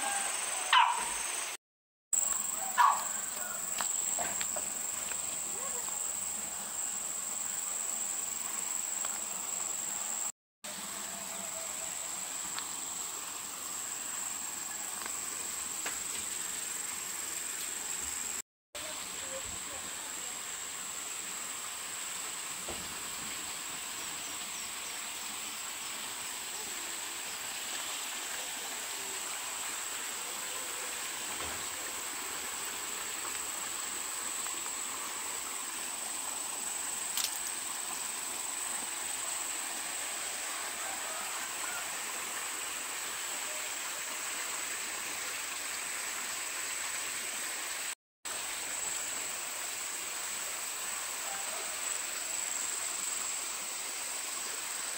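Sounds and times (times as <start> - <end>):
insect drone: 0.0 - 1.6, 2.2 - 54.9
steady hiss: 2.2 - 54.9.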